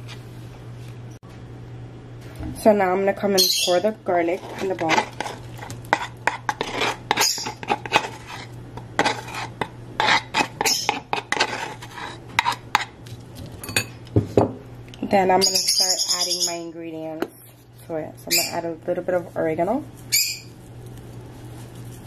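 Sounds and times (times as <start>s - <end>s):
metal spoon scraping ceramic bowl: 3.7s - 12.9s.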